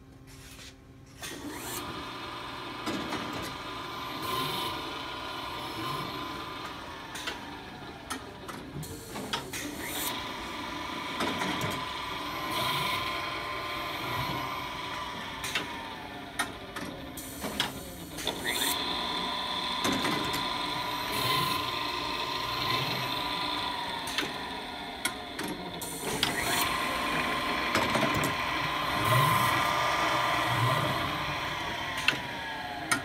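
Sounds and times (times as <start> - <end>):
fabric cutter motor whining: 1.2 - 33.0
machine parts clicking and clunking: 15.4 - 33.0.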